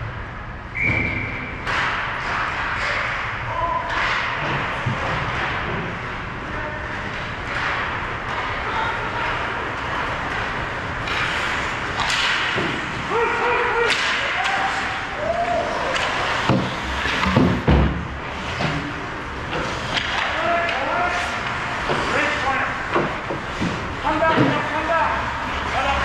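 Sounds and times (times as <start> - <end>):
skates and puck clacking on ice: 0.7 - 26.0
players shouting: 13.0 - 16.4.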